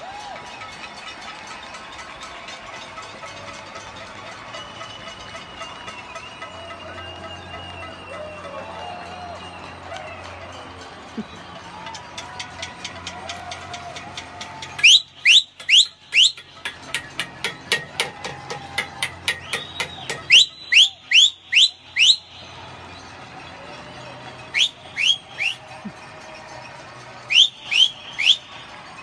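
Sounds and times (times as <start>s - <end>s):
shrill rising whistles: 4.5s - 10.4s, 14.6s - 23.1s, 24.4s - 25.8s, 27.2s - 29.0s
sharp claps or bangs: 12.7s - 20.5s.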